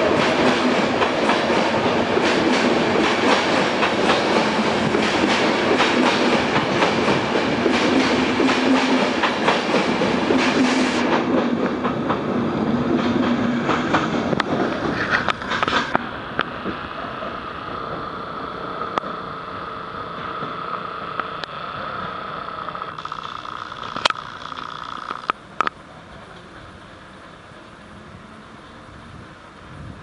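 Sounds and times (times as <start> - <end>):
train wheels clattering over rail joints: 0.0 - 16.8.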